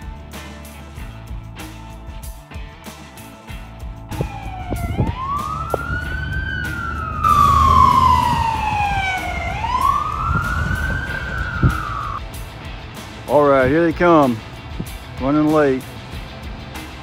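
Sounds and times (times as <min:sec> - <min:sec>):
fire engine siren wailing: 0:04.1 - 0:12.2
low rumble: 0:04.1 - 0:12.2.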